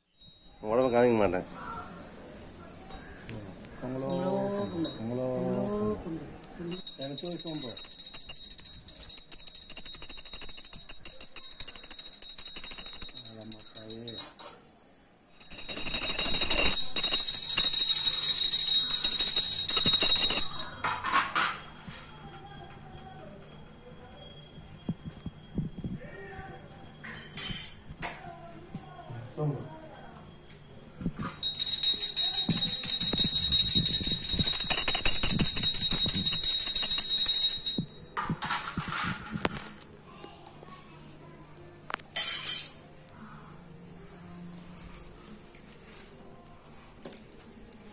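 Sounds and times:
hand bell ringing rapidly: 0:06.7 - 0:14.2, 0:15.4 - 0:20.8, 0:31.4 - 0:38.0.

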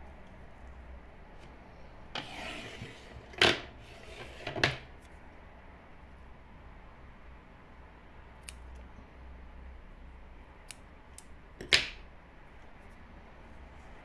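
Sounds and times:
scissors snipping yarn: 0:08.4 - 0:08.9.

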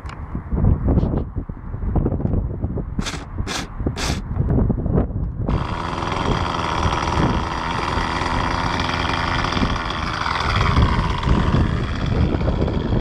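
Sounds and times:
electric starter spinning: 0:05.5 - 0:13.0
model helicopter engine idling: 0:05.5 - 0:13.0.

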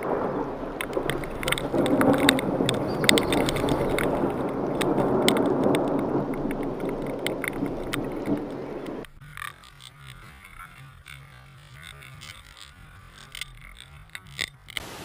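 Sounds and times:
heavy rain rushing: 0:00.0 - 0:09.2, 0:14.8 - 0:15.0
raindrops ticking on microphone: 0:00.0 - 0:15.0
wind: 0:00.0 - 0:15.0.

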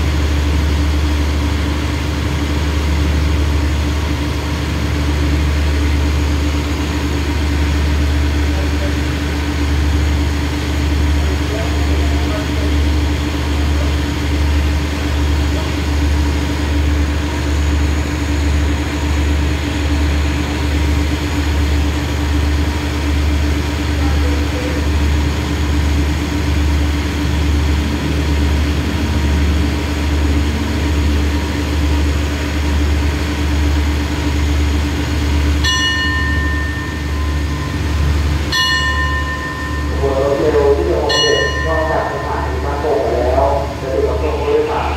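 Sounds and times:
diesel train engine idling: 0:00.0 - 0:44.9
multi-pitch ringing tone: 0:35.6 - 0:44.9.

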